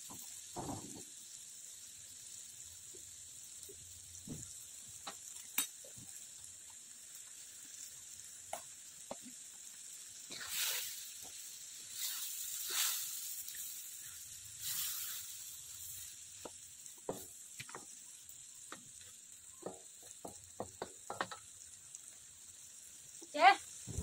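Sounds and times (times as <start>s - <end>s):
food sizzling in hot oil: 0.0s - 24.0s
spatula scraping wok: 10.0s - 18.0s
spatula knocking against wok: 19.6s - 21.5s.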